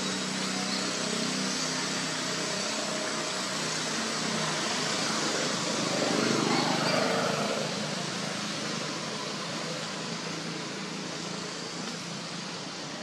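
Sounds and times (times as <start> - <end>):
outdoor hiss: 7.6 - 13.0.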